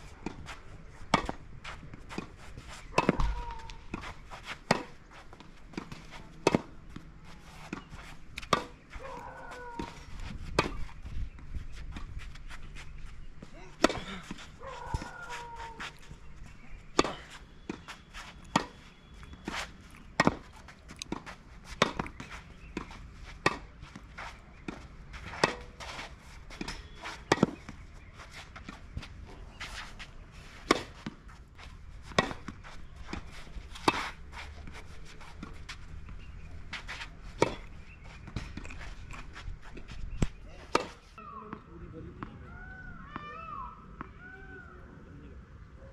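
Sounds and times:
tennis racket hitting ball: 2.1 - 6.8, 7.7 - 10.0, 10.6 - 10.9, 18.5 - 18.8, 19.4 - 23.7, 24.6 - 27.6, 30.6 - 31.2, 32.0 - 34.8.

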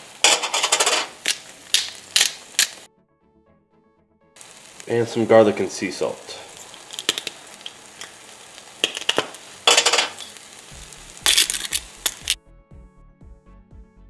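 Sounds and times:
food sizzling in a frying pan: 0.0 - 2.9, 4.4 - 12.4
spice grinder grinding: 0.0 - 2.9, 6.0 - 12.4
music with a steady beat: 12.3 - 14.0.

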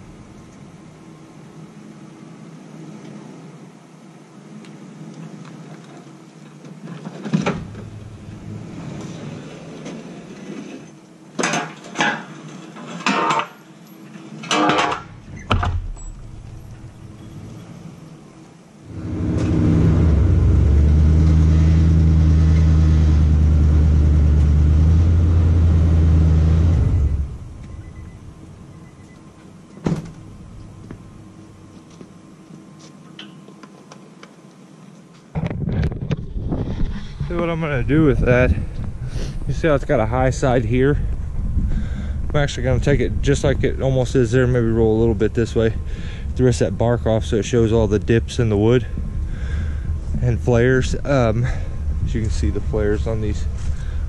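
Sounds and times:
loud clunk: 14.4 - 17.0
pickup truck engine running: 18.9 - 28.6.

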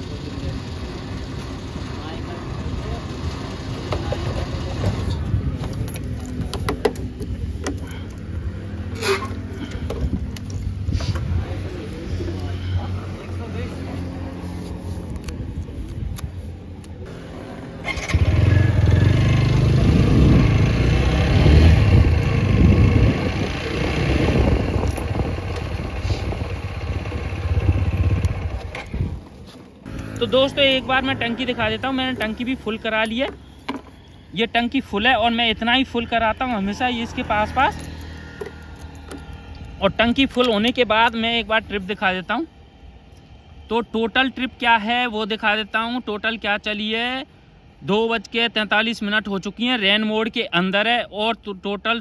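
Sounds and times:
sharp clicks and knocks: 5.6 - 7.8
motorcycle engine pulling away: 17.1 - 32.4.

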